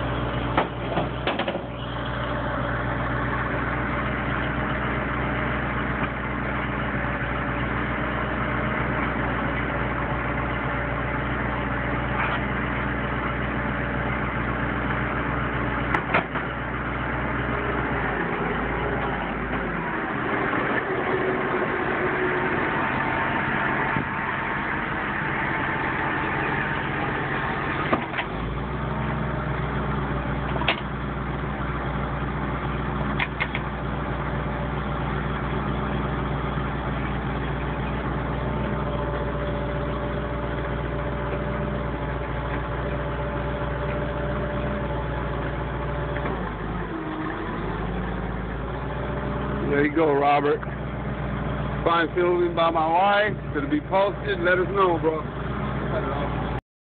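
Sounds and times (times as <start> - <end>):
truck engine idling: 0.0 - 56.6
tow hitch knocks: 0.5 - 1.7, 30.5 - 30.9.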